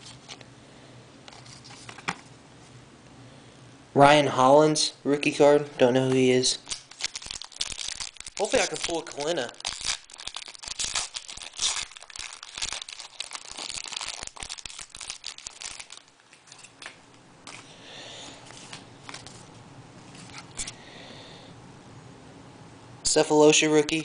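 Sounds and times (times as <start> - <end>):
foil wrapper crinkling and tearing: 6.6 - 17.0.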